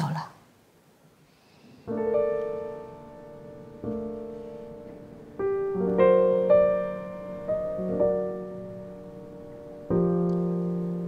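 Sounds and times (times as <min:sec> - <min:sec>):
slow piano chords: 0:01.8 - 0:11.0.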